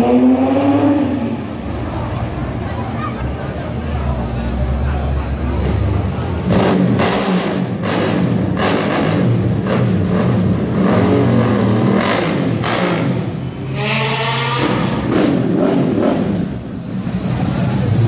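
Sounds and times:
sports car engines driving past: 0.0s - 18.0s
engine revving: 5.5s - 18.0s.

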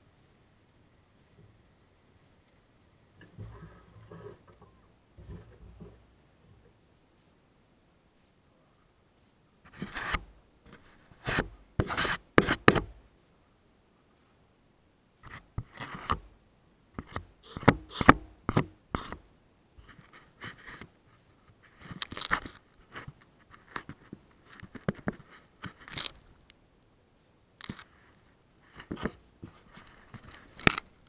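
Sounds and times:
camera handling noise: 22.0s - 22.6s, 23.5s - 26.3s, 28.8s - 31.0s.

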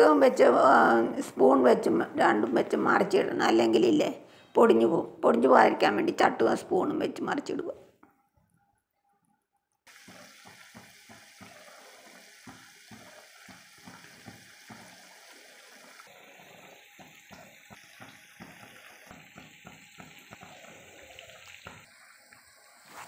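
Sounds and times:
fish frying in oil: 9.9s - 23.0s.

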